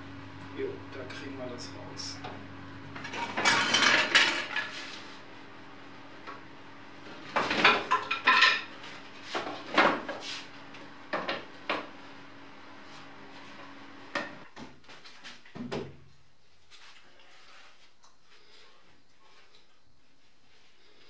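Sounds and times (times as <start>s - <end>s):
faint steady hum: 0.0s - 14.6s.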